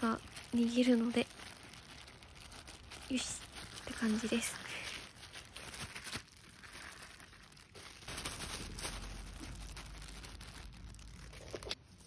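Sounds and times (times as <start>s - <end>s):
plastic bags crinkling: 0.0s - 12.0s.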